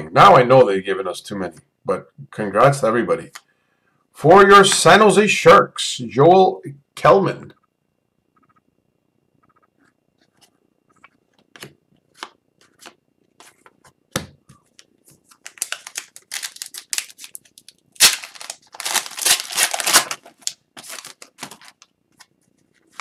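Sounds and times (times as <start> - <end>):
card pack tearing: 15.3 - 21.9
foil wrapper crinkling: 15.3 - 23.0.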